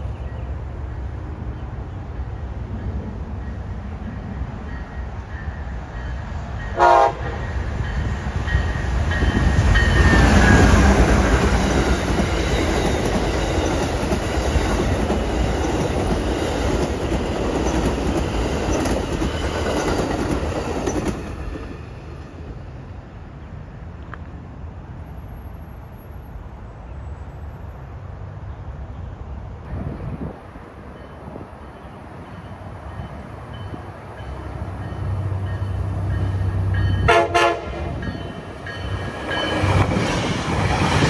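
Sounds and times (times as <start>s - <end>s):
locomotive whine: 2.0s - 23.0s, 29.7s - 41.0s
train wheels rumbling and clattering: 2.2s - 22.8s, 29.7s - 41.0s
train horn blast: 6.7s - 7.5s, 37.0s - 38.1s.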